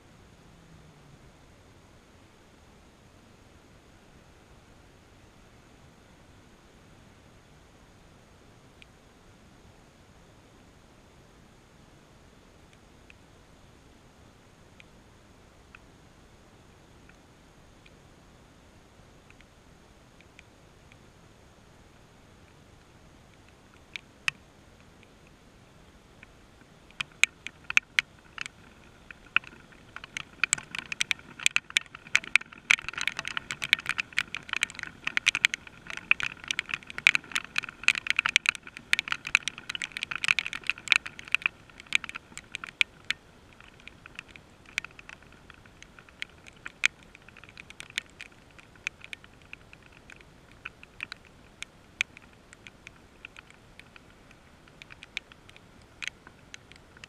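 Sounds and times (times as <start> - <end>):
raindrops ticking on hard surface: 26.2 - 57.0.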